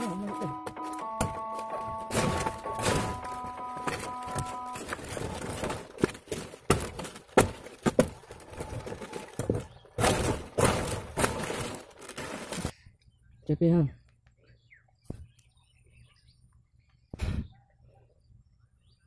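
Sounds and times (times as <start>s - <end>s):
sickle chopping stalks: 0.0s - 12.7s
palm fronds rustling: 0.0s - 12.8s.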